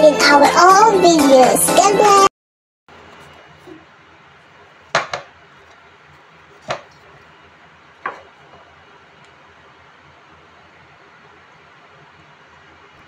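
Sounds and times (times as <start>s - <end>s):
potatoes knocking on wooden board: 4.9s - 5.4s, 6.6s - 6.9s.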